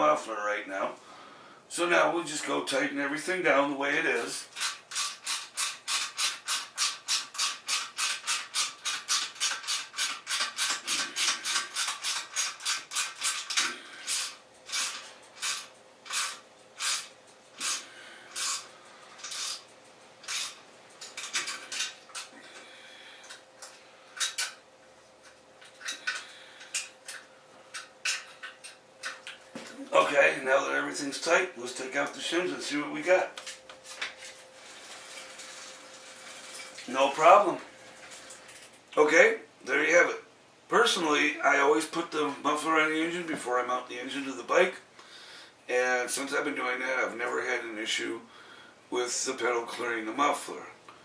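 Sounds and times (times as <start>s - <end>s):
ratchet wrench clicking: 4.6s - 17.8s.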